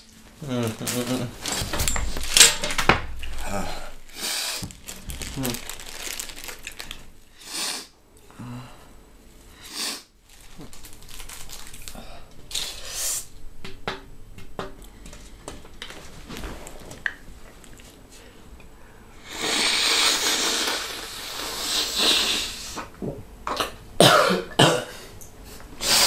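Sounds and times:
sniffing through the nose: 7.4s - 7.9s, 9.6s - 10.1s, 19.2s - 22.9s.

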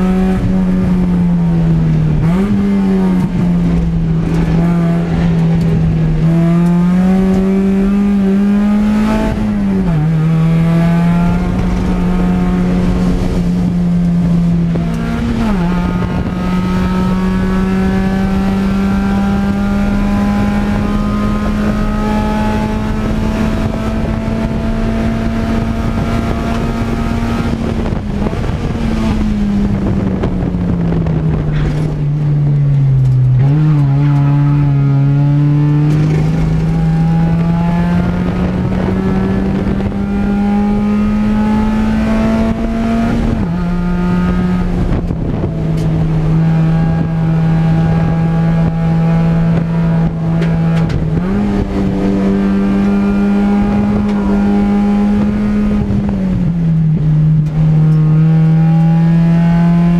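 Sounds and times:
race car engine: 0.0s - 59.9s.

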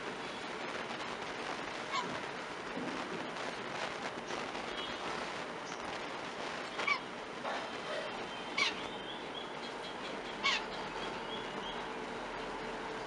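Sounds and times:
steady background hiss: 0.0s - 13.0s
bird calling: 6.7s - 7.1s, 7.8s - 12.0s.

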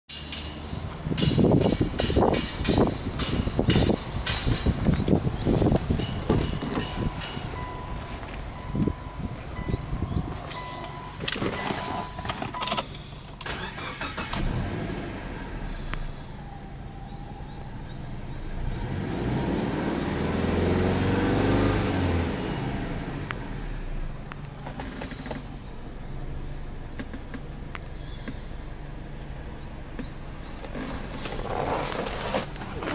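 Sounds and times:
car engine starting and idling: 4.9s - 32.9s
engine revving: 13.4s - 16.2s, 18.4s - 25.5s.

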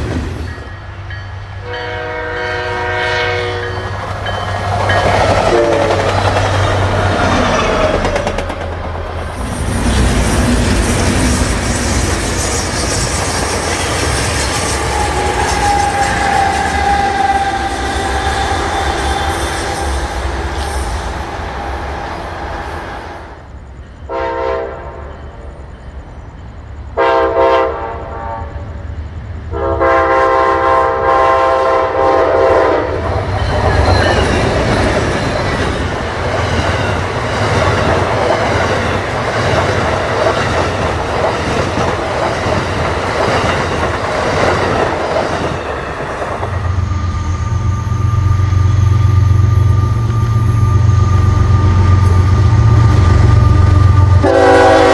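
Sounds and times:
train wheels rumbling and clattering: 0.0s - 24.1s, 32.0s - 54.9s
diesel locomotive engine hum: 0.0s - 54.9s
train horn blasts: 1.6s - 4.0s, 5.4s - 6.1s, 14.6s - 20.8s, 24.1s - 25.1s, 27.0s - 28.6s, 29.5s - 33.0s, 51.1s - 54.9s.

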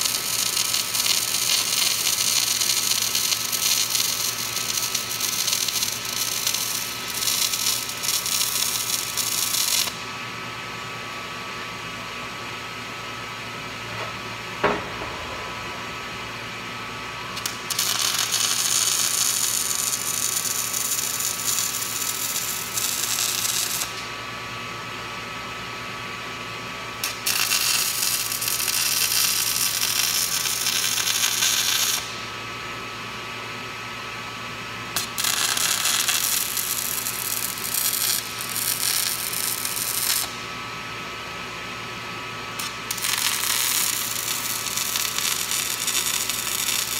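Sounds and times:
arc welding crackling sizzle: 0.0s - 10.2s, 17.1s - 24.2s, 27.0s - 32.4s, 34.9s - 40.6s, 42.2s - 46.9s
steady electrical hum: 0.0s - 46.9s.

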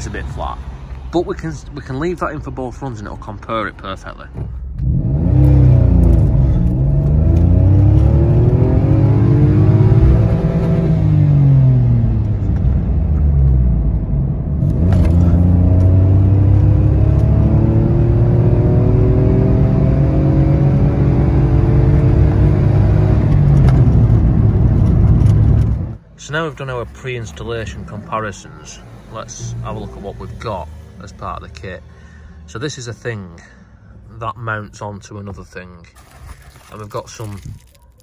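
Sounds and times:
car engine accelerating: 4.7s - 26.0s.

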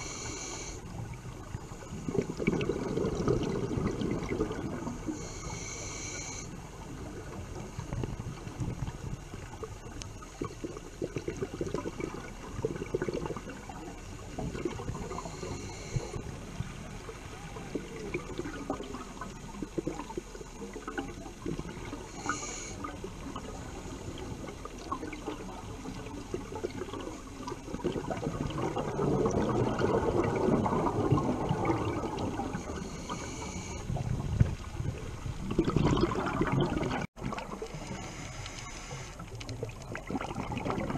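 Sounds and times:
regulator breathing hiss: 0.0s - 1.0s, 5.1s - 6.7s, 14.9s - 16.7s, 22.0s - 23.0s, 32.6s - 34.0s, 37.6s - 39.4s
crackling underwater noise: 0.0s - 40.9s
rush of bubbles: 1.6s - 5.7s, 10.3s - 40.9s.

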